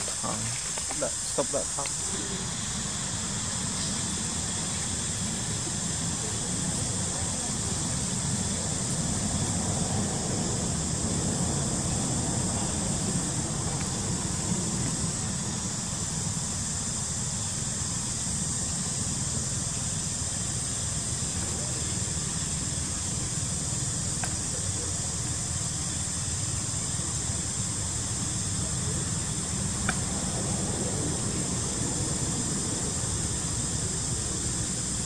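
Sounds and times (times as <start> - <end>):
even hiss: 0.0 - 35.0.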